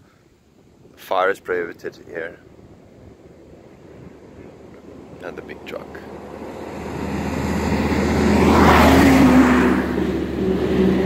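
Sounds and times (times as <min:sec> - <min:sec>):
truck passing: 0:02.4 - 0:11.0.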